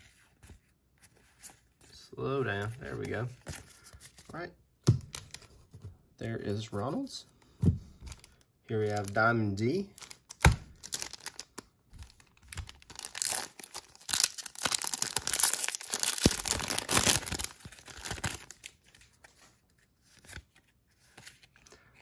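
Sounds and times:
foil wrapper tearing and crinkling: 0:10.0 - 0:18.7.

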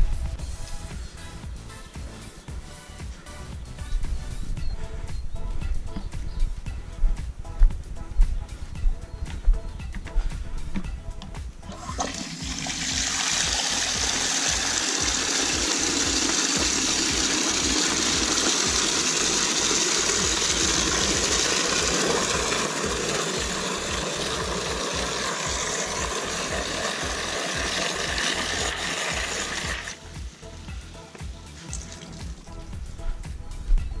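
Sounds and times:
water pouring into plastic bucket: 0:11.7 - 0:30.0, 0:31.6 - 0:32.6.

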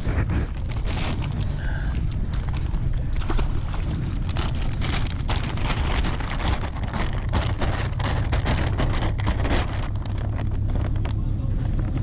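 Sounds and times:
jacket fabric rustling: 0:00.0 - 0:12.0
plastic bag crackling: 0:00.0 - 0:12.0
steady low rumble: 0:00.0 - 0:12.0.

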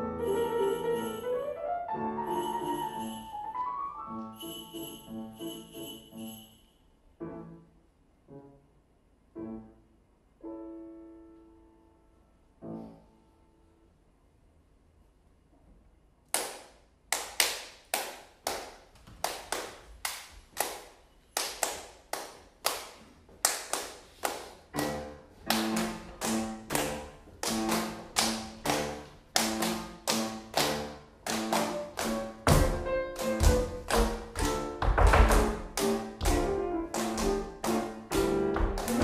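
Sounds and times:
piano chords: 0:00.0 - 0:14.0, 0:24.4 - 0:39.0
rhythmic hand clapping: 0:16.3 - 0:39.0.

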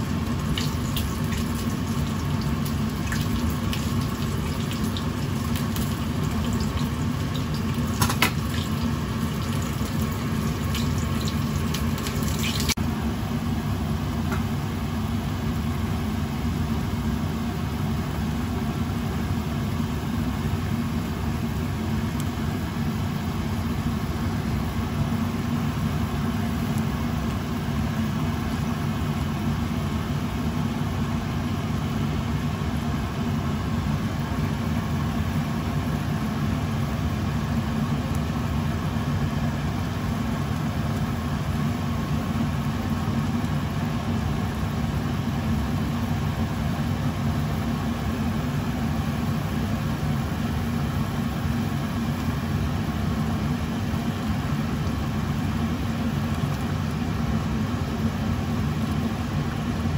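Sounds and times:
sauce bubbling and sizzling: 0:00.0 - 0:12.8.

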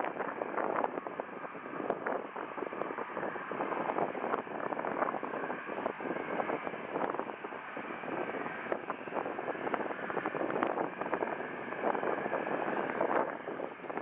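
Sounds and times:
distant jet engines: 0:00.0 - 0:14.0
wind buffeting microphone: 0:00.0 - 0:14.0.

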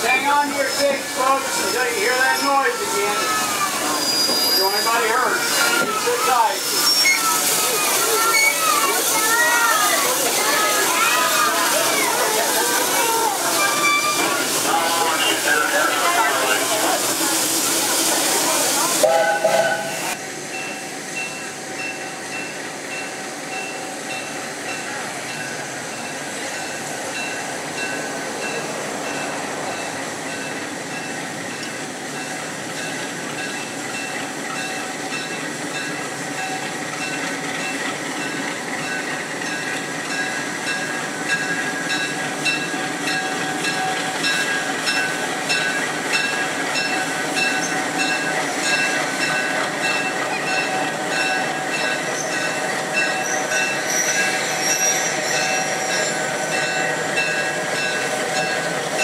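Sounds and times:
train rumbling on track: 0:00.0 - 0:59.0
loud hiss: 0:00.4 - 0:20.4.

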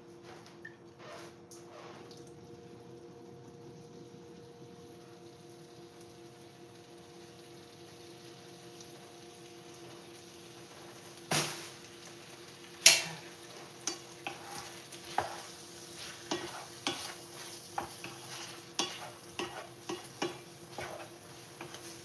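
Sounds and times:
food sizzling: 0:03.0 - 0:22.0
spatula scraping frying pan: 0:12.9 - 0:22.0
spatula knocking against pan: 0:15.1 - 0:15.4, 0:17.8 - 0:18.2, 0:18.8 - 0:21.9.

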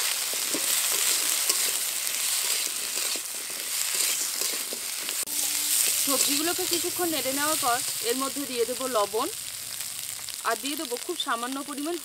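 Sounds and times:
vegetables sizzling in hot oil: 0:00.0 - 0:12.0
spatula scraping a metal pan: 0:00.3 - 0:07.6.

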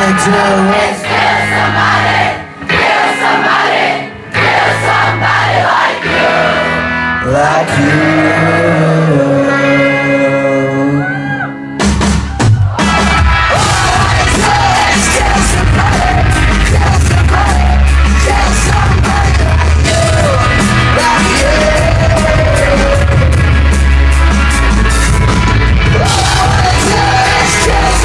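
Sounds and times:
crowd yelling: 0:00.0 - 0:07.1, 0:10.9 - 0:28.0
live rock band: 0:00.0 - 0:28.0
person singing: 0:06.0 - 0:11.6, 0:13.5 - 0:23.7, 0:25.8 - 0:28.0.

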